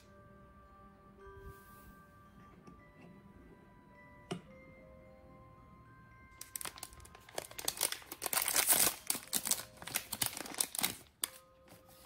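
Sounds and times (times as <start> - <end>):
foil bag crinkling: 6.4 - 12.0.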